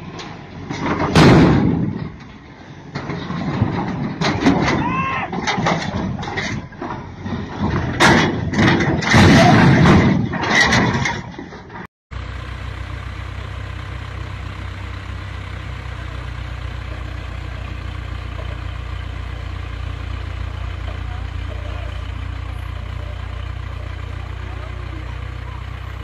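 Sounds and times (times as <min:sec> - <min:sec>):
uneven mechanical noise with knocks: 0:00.0 - 0:11.9
low diesel engine drone: 0:00.0 - 0:26.0.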